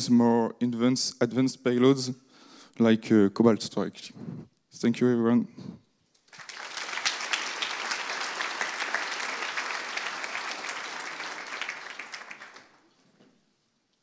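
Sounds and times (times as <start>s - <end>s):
audience applauding: 6.2s - 12.9s.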